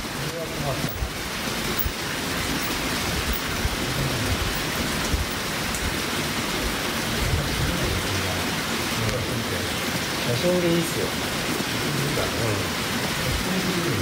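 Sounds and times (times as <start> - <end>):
low rumbles: 0.0 - 9.2
steady outdoor hiss: 0.0 - 14.0.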